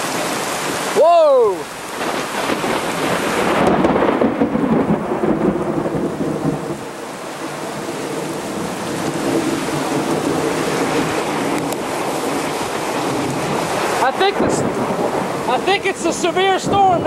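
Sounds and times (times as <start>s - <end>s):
steady rain: 0.0s - 17.0s
thunder crack and rumble: 1.9s - 17.0s.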